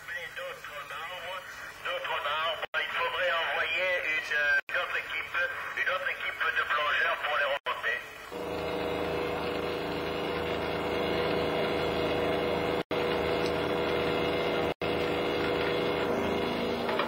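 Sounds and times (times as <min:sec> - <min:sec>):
winch motor humming: 0:08.2 - 0:17.0.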